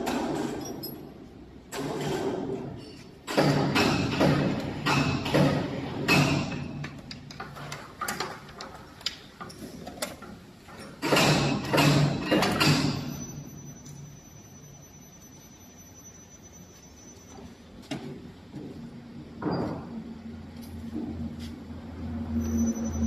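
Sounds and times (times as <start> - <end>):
machine clicks and knocks: 1.7 - 13.1.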